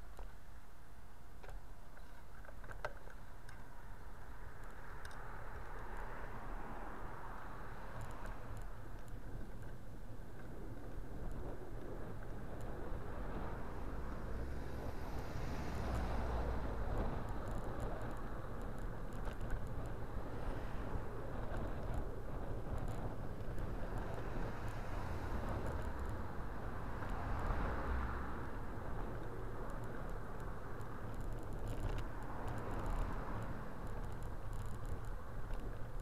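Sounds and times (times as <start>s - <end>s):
wind and road rumble: 0.0s - 36.0s
faint clicks: 1.4s - 6.1s, 29.0s - 36.0s
car passing: 3.7s - 9.5s, 10.1s - 36.0s.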